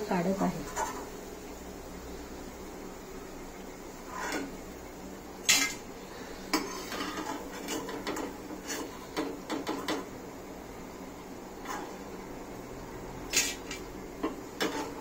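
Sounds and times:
metal spoon scraping cookware: 13.3 - 15.0.

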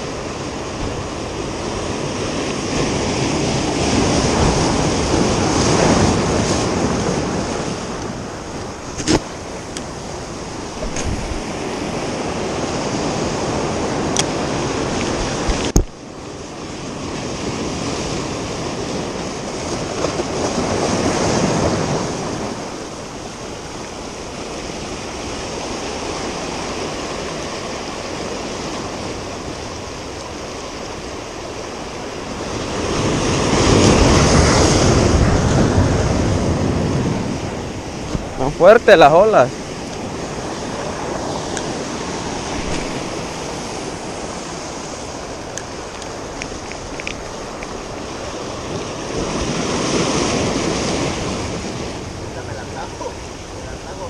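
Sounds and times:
surf breaking over rocks: 0.0 - 54.0
sharp click: 10.9 - 11.2.

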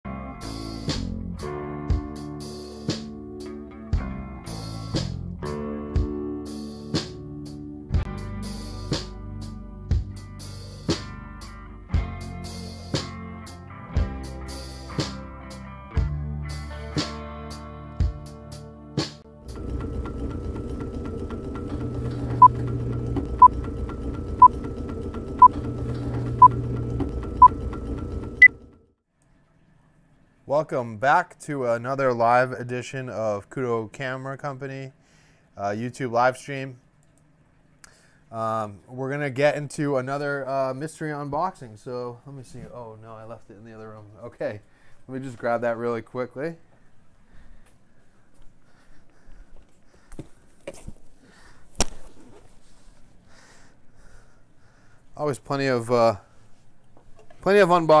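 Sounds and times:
band music with guitar chords: 0.1 - 19.2
film projector whirring and clattering: 19.4 - 28.9.

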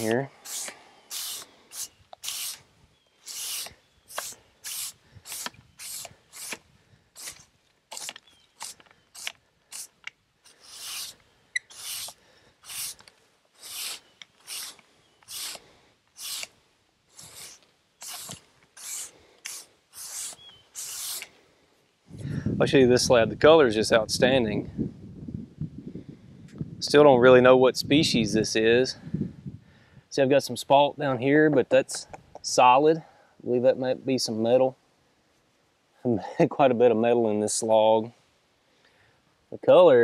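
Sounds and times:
push broom sweeping wood: 0.0 - 6.6, 7.2 - 21.3.

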